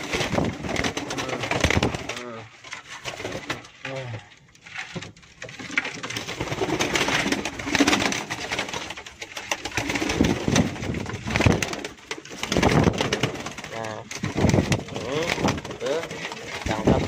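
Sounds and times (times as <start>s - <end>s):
rustling and scuffling: 0.0s - 17.0s
pigeons cooing: 5.8s - 17.0s.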